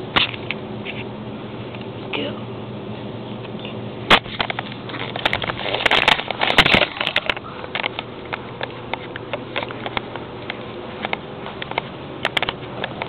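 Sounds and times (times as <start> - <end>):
plastic rustling and scraping: 4.1 - 13.0.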